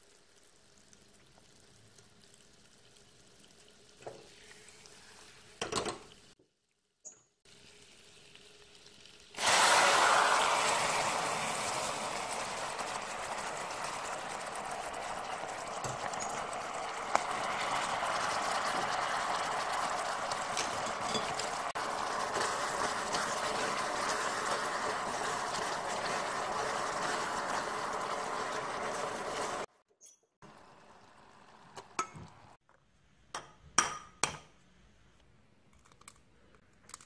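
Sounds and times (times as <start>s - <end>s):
caramel sauce boiling: 7.5s - 29.7s.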